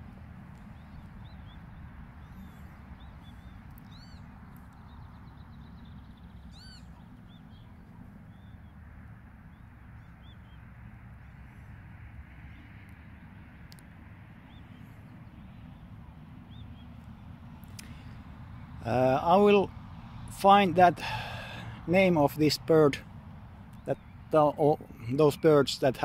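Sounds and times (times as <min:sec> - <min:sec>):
lapwings calling: 0:00.5 - 0:08.8.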